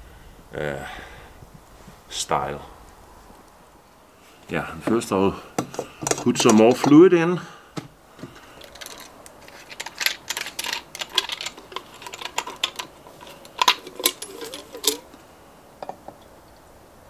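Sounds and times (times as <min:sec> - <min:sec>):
clicks and metallic clinks: 0:08.4 - 0:15.2.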